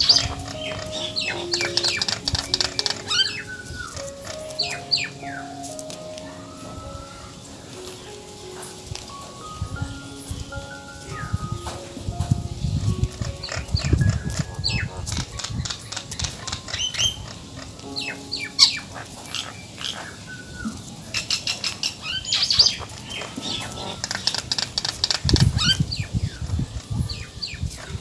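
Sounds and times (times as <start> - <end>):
squirrel chirps: 0.0 - 5.4
faint melody: 0.0 - 28.0.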